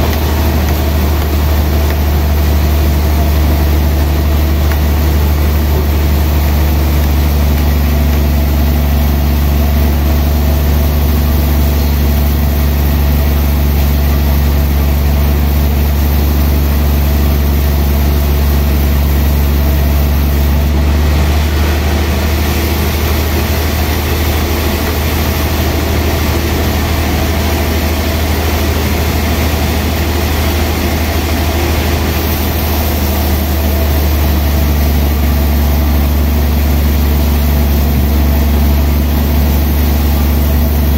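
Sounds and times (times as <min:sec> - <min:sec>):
saw blade cutting log: 0:00.0 - 0:20.6
band saw humming: 0:00.0 - 0:21.0.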